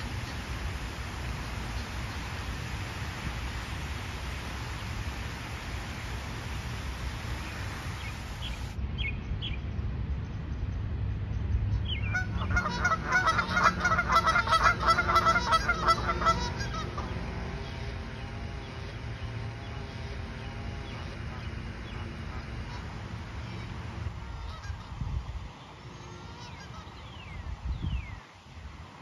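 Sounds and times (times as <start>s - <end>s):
geese honking: 12.1s - 27.4s.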